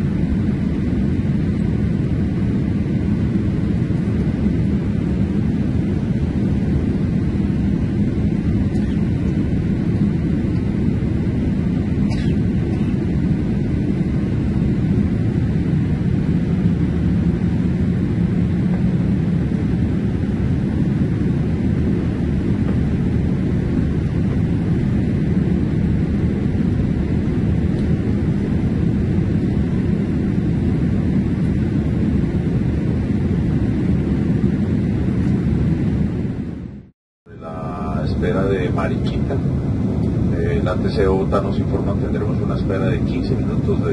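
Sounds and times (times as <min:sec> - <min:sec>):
aircraft engine and airflow rumble: 0:00.0 - 0:43.9.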